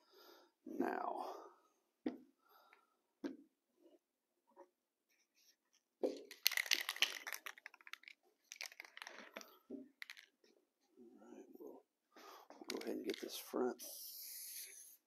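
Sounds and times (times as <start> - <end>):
aerosol can mixing ball rattling: 6.1 - 10.4, 12.6 - 13.5.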